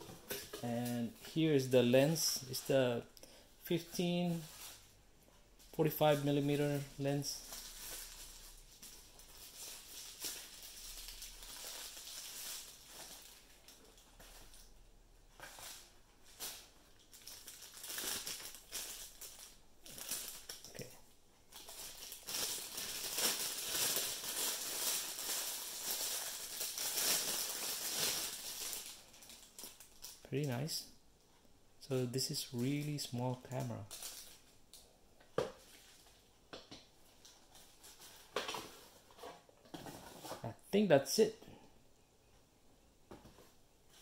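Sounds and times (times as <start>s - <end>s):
plastic packaging crinkling: 5.9s - 14.8s, 15.4s - 30.7s, 32.5s - 34.8s.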